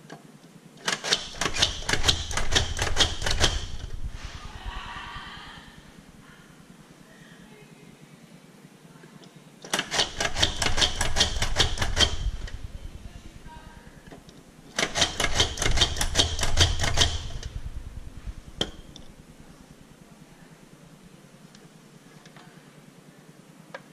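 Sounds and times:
rapid rattle of clicks: 0:00.8 - 0:04.1, 0:09.6 - 0:13.0, 0:14.0 - 0:19.3
low hum: 0:01.2 - 0:09.1, 0:10.1 - 0:23.6.

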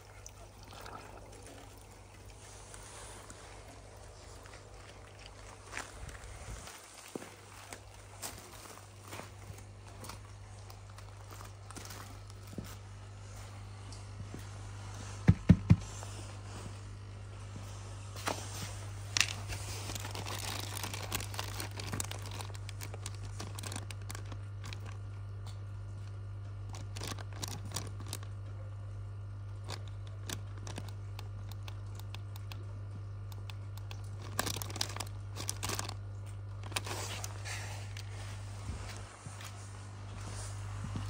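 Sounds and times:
steady low hum: 0:00.0 - 0:41.0
plastic bag crinkling: 0:18.2 - 0:25.4, 0:26.1 - 0:28.4, 0:29.6 - 0:40.5.

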